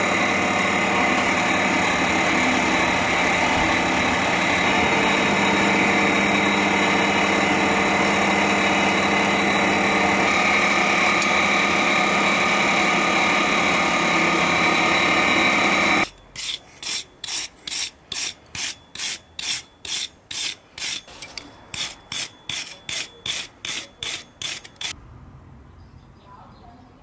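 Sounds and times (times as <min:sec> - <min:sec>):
wire brush scrubbing steel: 0:16.0 - 0:25.0.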